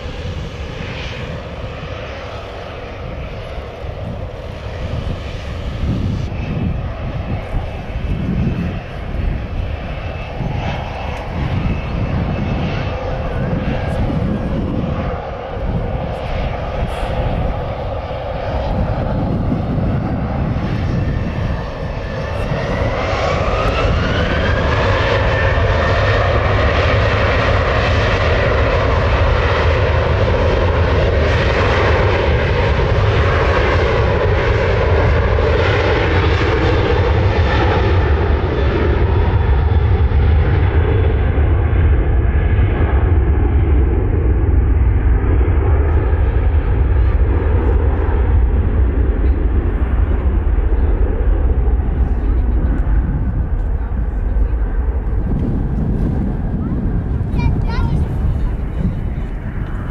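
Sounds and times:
jet engine whine: 0.0s - 59.9s
low engine rumble: 40.8s - 59.9s.

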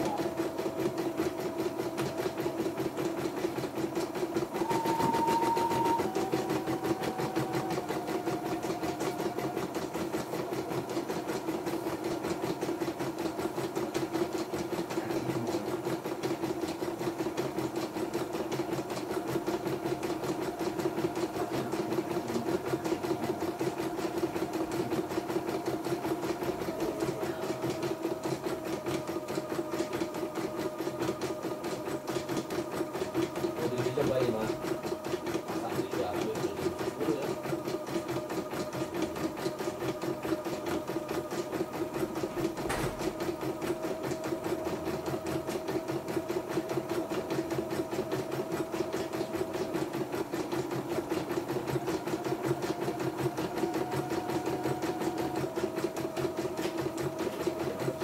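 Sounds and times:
machine drive humming: 0.0s - 45.3s.

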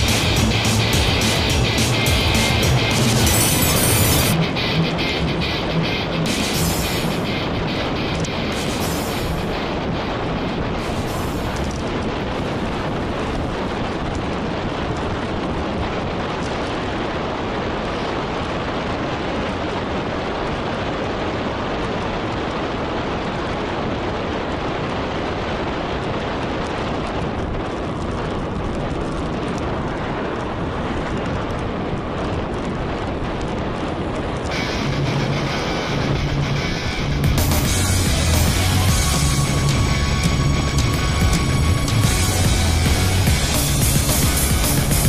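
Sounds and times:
wind buffeting microphone: 0.0s - 45.0s.

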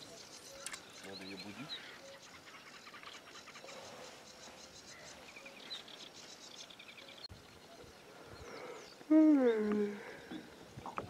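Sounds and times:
songbirds chirping and trilling: 0.0s - 11.0s.

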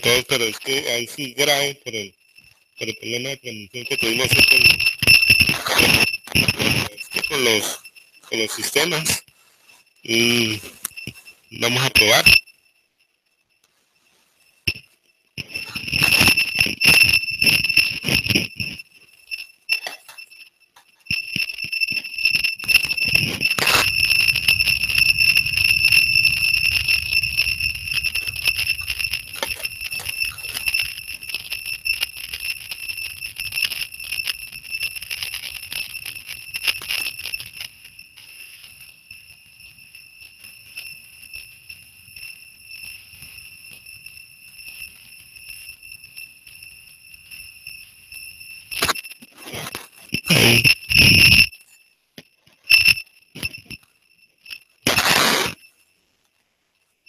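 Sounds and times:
harsh audio crackle: 0.0s - 57.0s
high-pitched ringing tone: 0.0s - 57.0s.

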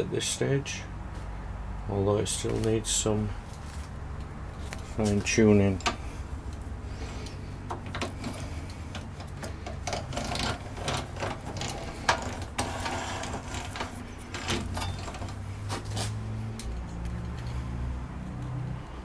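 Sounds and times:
low steady hum: 0.0s - 19.0s
lathe gear metallic clicks and rattling: 7.2s - 16.0s.

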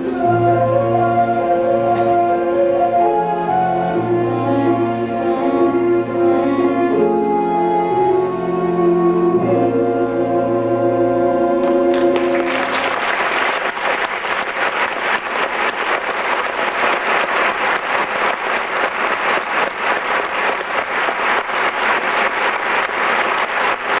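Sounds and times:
held musical chord: 0.0s - 12.9s
audience applauding: 11.6s - 24.0s.

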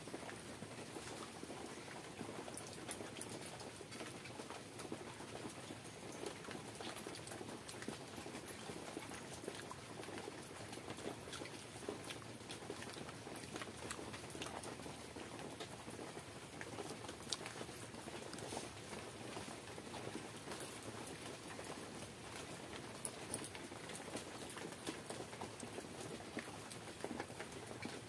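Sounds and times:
chewing and lip smacking: 6.1s - 21.8s.

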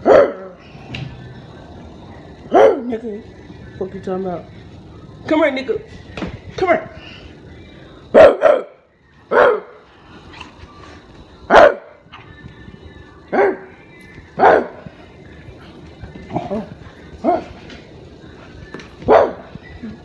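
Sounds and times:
dog barking: 0.0s - 0.6s, 2.5s - 2.9s, 8.1s - 9.8s, 11.5s - 12.0s, 13.3s - 13.7s, 14.4s - 14.8s, 19.1s - 19.5s.

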